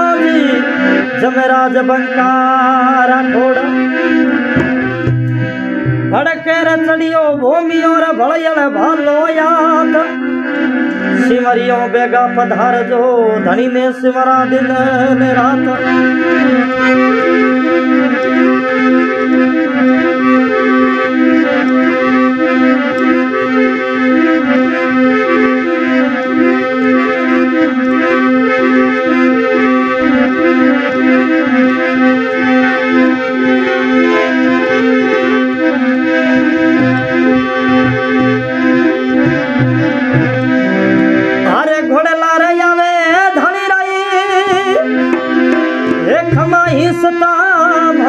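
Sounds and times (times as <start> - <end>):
reed keyboard melody: 0.0 - 48.0
steady held drone: 3.0 - 8.2, 12.9 - 41.6, 44.5 - 48.0
hand drums: 4.6 - 6.4, 45.1 - 47.0.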